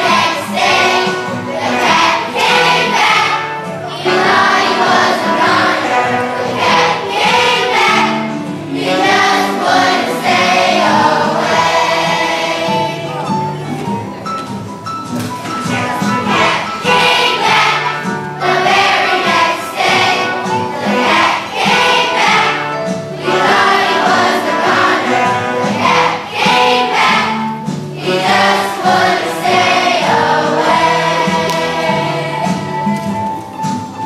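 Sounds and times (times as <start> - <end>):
children's choir singing: 0.0 - 14.1, 15.4 - 34.0
musical accompaniment: 0.0 - 34.0.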